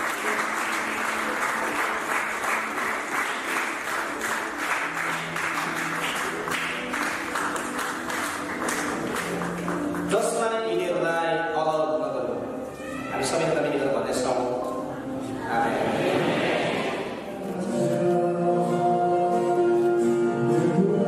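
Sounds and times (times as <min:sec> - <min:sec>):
audience applauding: 0:00.0 - 0:10.5
instrumental music with held notes: 0:17.2 - 0:21.0.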